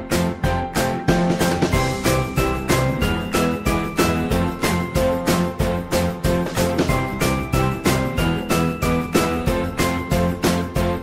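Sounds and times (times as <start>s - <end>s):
music with steady beat: 0.0s - 11.0s
bright chiming melody: 1.7s - 10.5s.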